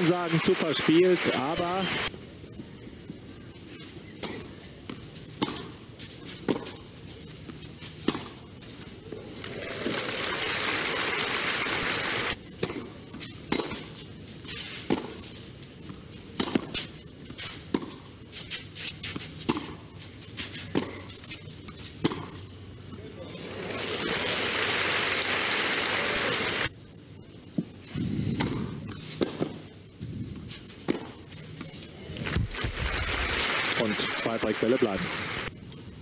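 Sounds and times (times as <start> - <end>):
racket hitting tennis ball: 4.2 - 6.8, 8.0 - 8.4, 12.6 - 14.0, 14.6 - 15.2, 16.3 - 19.8, 20.6 - 22.4, 28.3 - 29.6, 30.4 - 31.2
crowd applause: 9.4 - 12.4, 23.4 - 26.7, 32.6 - 35.5.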